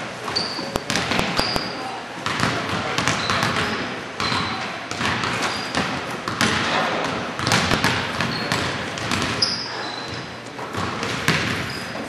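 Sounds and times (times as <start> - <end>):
basketball bouncing on hardwood floor: 0.3 - 1.6, 2.2 - 6.7, 7.4 - 9.4, 10.8 - 11.6
shoe squeaks: 0.3 - 1.9, 5.4 - 5.8, 8.3 - 8.6, 9.4 - 10.3, 11.6 - 12.0.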